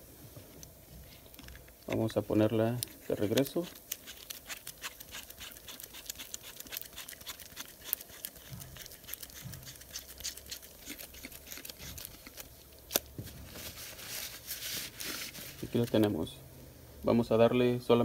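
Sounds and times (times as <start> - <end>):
gloves rustling: 0.3 - 16.3.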